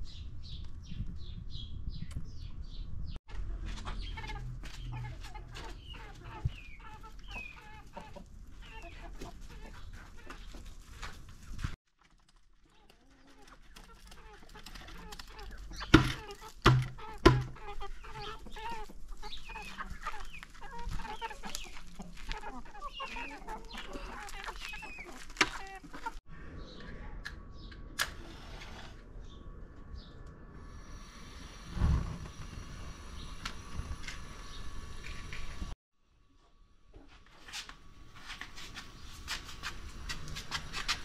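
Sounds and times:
chickens clucking: 3.4s - 11.5s, 12.8s - 26.2s
loud thumps: 15.9s - 17.6s.

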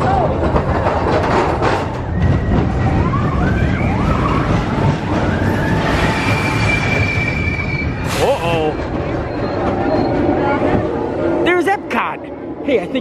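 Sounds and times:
roller coaster rumble: 0.0s - 13.0s
high wheel squeals: 2.0s - 10.6s.

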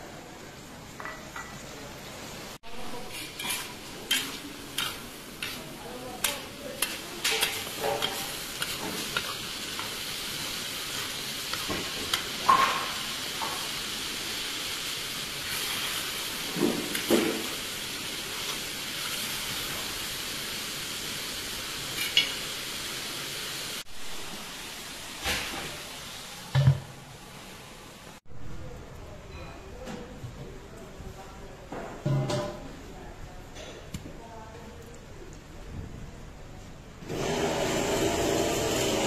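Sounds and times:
rice and broth sizzling: 0.0s - 28.3s, 37.0s - 39.0s.

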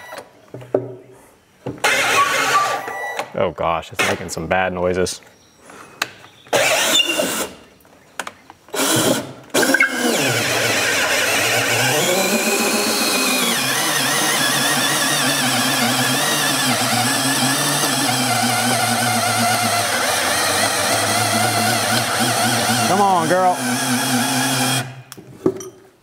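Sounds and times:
cordless drill boring through wood: 1.8s - 2.8s, 6.5s - 7.6s, 8.7s - 25.0s.

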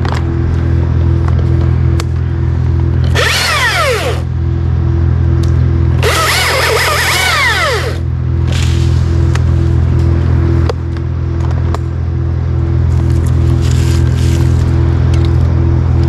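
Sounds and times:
steady low hum: 0.0s - 16.0s
chainsaw cutting: 3.0s - 4.3s, 6.0s - 8.1s.

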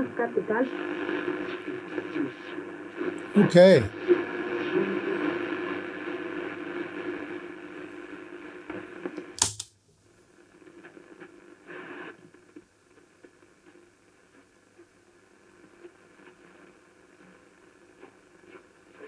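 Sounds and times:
valve radio receiving a station: 0.0s - 9.6s
faint radio hiss: 0.0s - 19.0s
push-button switch click: 9.4s - 9.7s.

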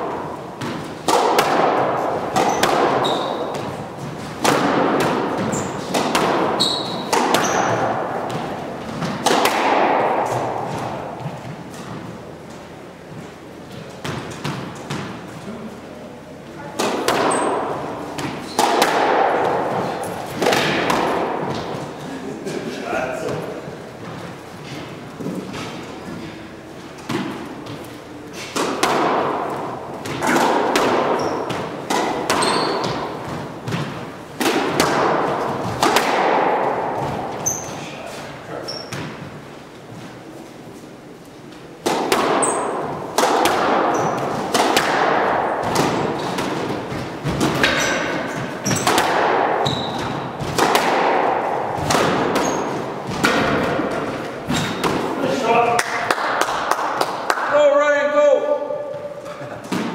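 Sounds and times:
squash ball hits echoing: 0.0s - 12.4s, 13.0s - 15.3s, 16.6s - 22.2s, 22.9s - 39.5s, 41.7s - 57.6s, 58.2s - 59.9s
shoes squeaking on hardwood floor: 2.4s - 4.3s, 5.4s - 5.9s, 6.5s - 7.8s, 31.1s - 33.7s, 37.0s - 40.4s, 43.9s - 44.4s, 47.7s - 48.9s, 49.6s - 50.2s, 52.4s - 53.0s, 54.4s - 55.2s.

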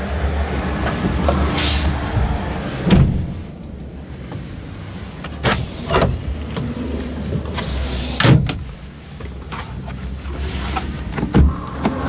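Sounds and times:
steady low rumble: 0.0s - 8.0s.

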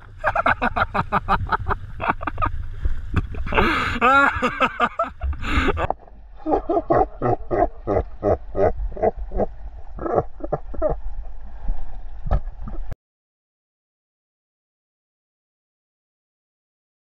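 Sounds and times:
person laughing hard: 0.2s - 2.5s, 3.2s - 11.0s.

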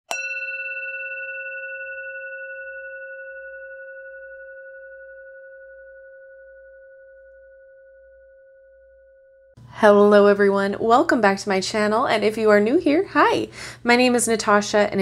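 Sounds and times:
singing bowl ringing: 0.1s - 9.6s.

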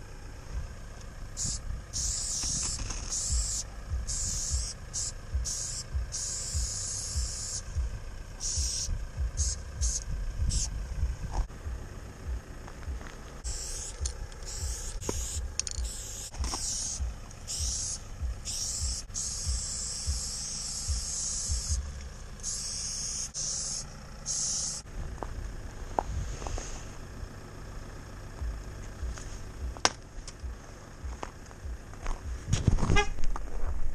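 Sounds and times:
low rumble with soft thumps: 0.0s - 22.6s, 23.8s - 33.9s
spray paint can hissing: 1.4s - 7.8s, 8.4s - 10.7s, 13.4s - 24.8s.

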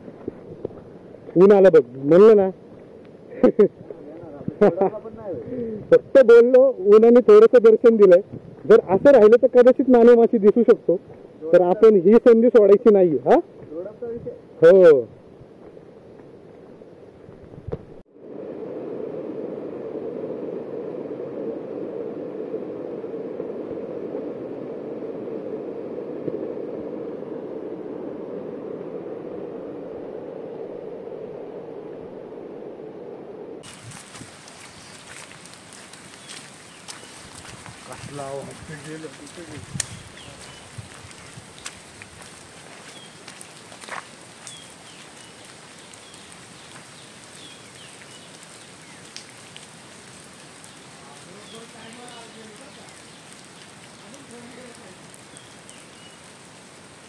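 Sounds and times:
steady hiss: 0.0s - 16.1s, 17.6s - 57.0s
steady rushing noise: 17.2s - 45.0s
small bird chirping: 33.6s - 37.9s, 39.6s - 41.8s, 42.8s - 43.3s, 44.4s - 49.2s, 50.6s - 56.3s.

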